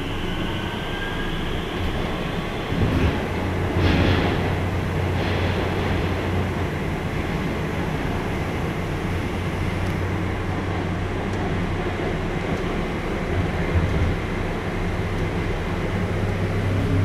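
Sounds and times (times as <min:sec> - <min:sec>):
train wheels rumbling: 0:00.0 - 0:17.0.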